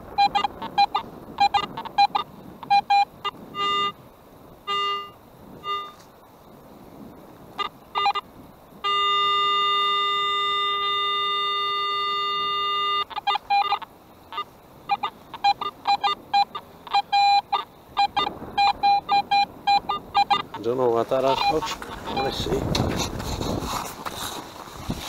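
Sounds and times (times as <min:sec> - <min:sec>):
metal detector steady tone: 0:00.0 - 0:06.2, 0:07.5 - 0:22.6
metal detector short beeps: 0:00.1 - 0:04.0, 0:04.7 - 0:06.1, 0:07.6 - 0:20.5, 0:21.2 - 0:22.5.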